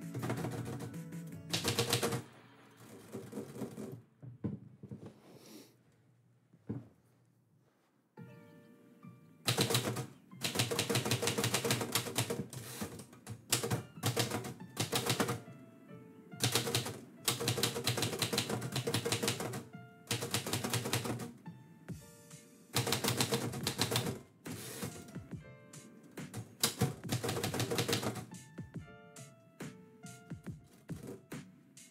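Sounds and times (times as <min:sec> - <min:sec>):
typewriter keystrokes: 0:00.0 - 0:02.2, 0:09.5 - 0:15.4, 0:16.4 - 0:21.3, 0:22.8 - 0:25.2, 0:26.3 - 0:28.3
quiet background music: 0:00.0 - 0:05.2, 0:06.1 - 0:31.9.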